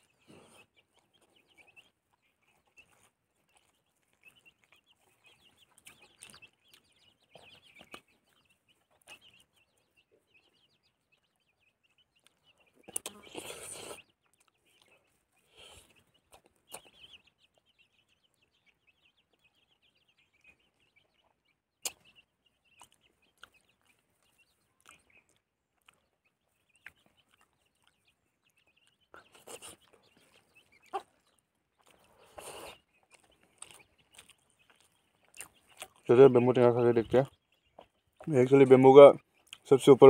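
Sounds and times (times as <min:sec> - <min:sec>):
mouth sounds of eating: 0:00.0 - 0:40.0
bird chattering: 0:11.9 - 0:40.0.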